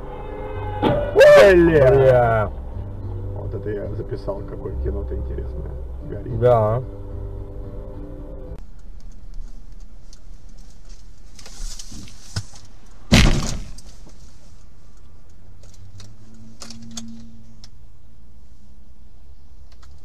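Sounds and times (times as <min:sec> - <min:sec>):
car road and engine rumble: 0:00.0 - 0:20.0
loud bang on car body: 0:13.1 - 0:13.8.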